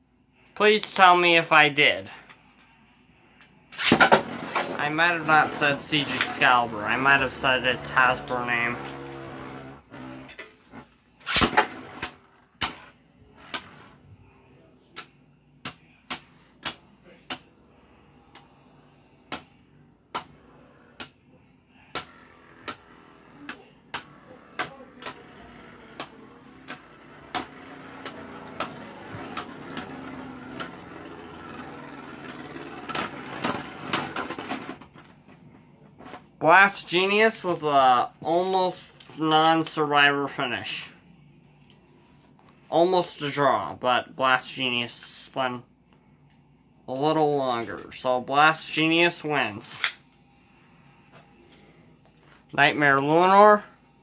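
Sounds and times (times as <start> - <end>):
whir of spinning tops: 22.0 - 34.7.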